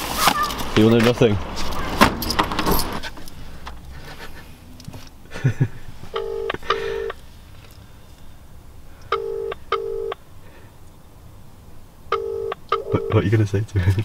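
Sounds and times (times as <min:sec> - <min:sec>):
phone ringing tone: 0:06.1 - 0:07.2, 0:09.1 - 0:10.2, 0:12.1 - 0:13.2.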